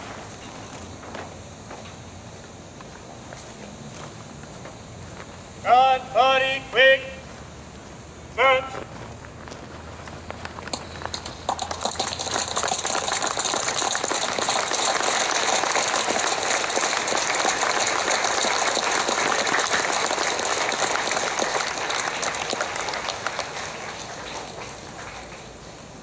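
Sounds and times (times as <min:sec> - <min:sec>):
crowd applauding: 0:11.0 - 0:26.0.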